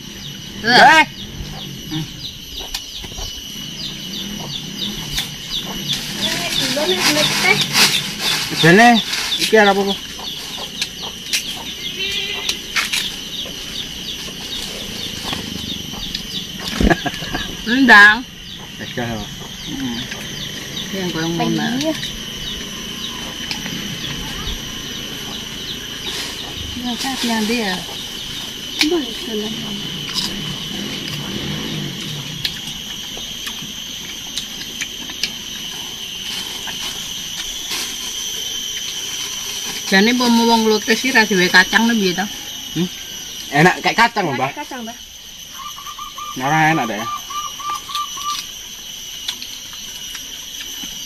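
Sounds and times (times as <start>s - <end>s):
birds chirping: 0.0s - 51.0s
high-pitched drone: 0.0s - 51.0s
fruit crunching: 27.8s - 41.6s, 47.7s - 51.0s.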